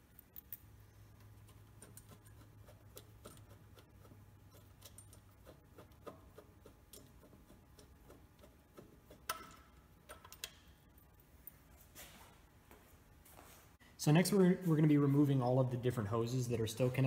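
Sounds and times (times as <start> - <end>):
faint low hum: 0.0 - 17.0
clicks of metal fastenings: 8.8 - 10.7.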